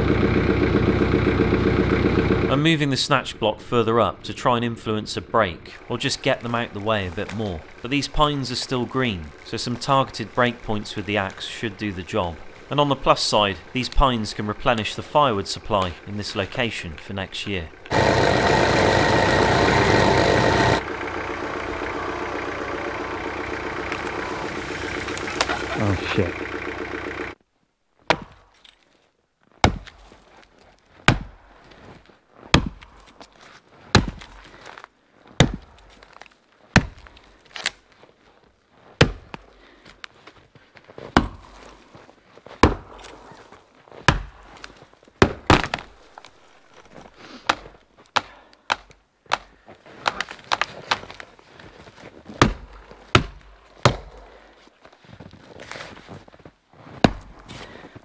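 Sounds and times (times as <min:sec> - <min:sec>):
axe chopping wood: 0:28.1 - 0:28.4, 0:29.6 - 0:30.0, 0:31.1 - 0:31.3, 0:32.5 - 0:32.9, 0:33.9 - 0:34.4, 0:35.4 - 0:35.8, 0:36.8 - 0:37.7, 0:39.0 - 0:39.4, 0:41.1 - 0:41.6, 0:42.6 - 0:43.2, 0:44.1 - 0:46.0, 0:47.4 - 0:51.2, 0:52.3 - 0:54.3, 0:57.0 - 0:57.3.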